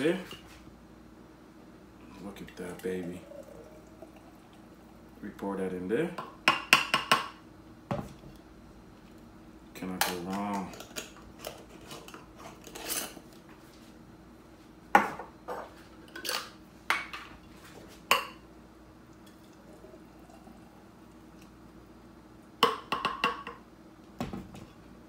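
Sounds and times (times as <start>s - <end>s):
smoothie pouring into jar: 2.2s - 5.0s.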